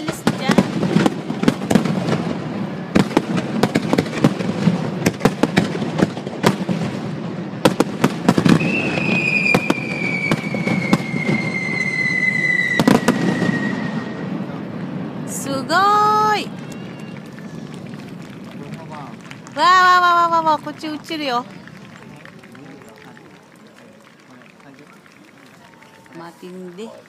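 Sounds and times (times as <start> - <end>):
firework bangs and crackles: 0.0 - 27.0
firework whistle falling in pitch: 8.5 - 14.4, 16.5 - 17.8.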